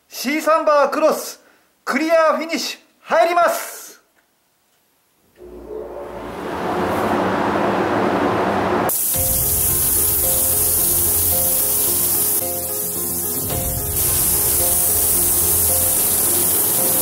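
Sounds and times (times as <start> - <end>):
paint spray gun hissing: 8.9 - 17.0.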